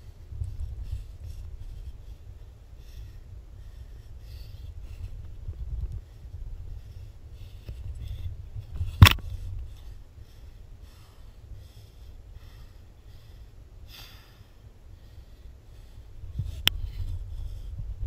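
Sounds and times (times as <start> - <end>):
wind rumble on microphone: 0.0 - 18.0
person breathing in puffs: 9.4 - 17.8.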